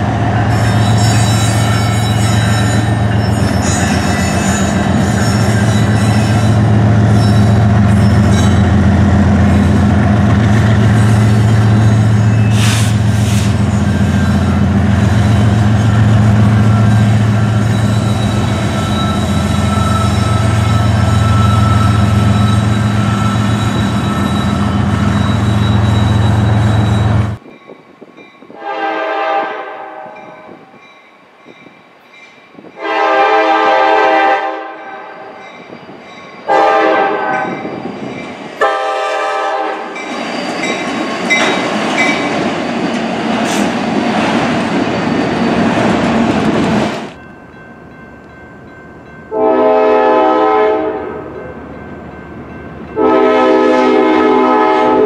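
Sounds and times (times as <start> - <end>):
diesel locomotive engine drone: 0.0 - 32.0, 32.6 - 55.0
train rail noise: 0.0 - 55.0
locomotive horn blasts: 28.6 - 30.7, 32.8 - 35.2, 36.5 - 37.6, 38.6 - 39.9, 49.3 - 51.5, 53.0 - 55.0.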